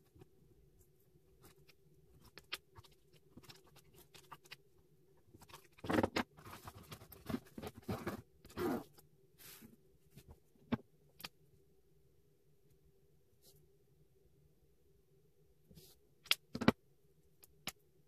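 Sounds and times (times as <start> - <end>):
zipper pulls: 7.3 - 9.0.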